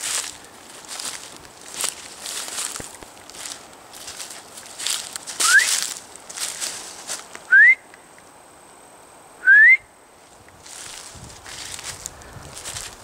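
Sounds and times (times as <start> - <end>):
footsteps on dry leaves: 0.0 - 7.4, 10.2 - 13.0
person whistling rising notes: 5.4 - 5.8, 7.5 - 7.9, 9.4 - 9.9.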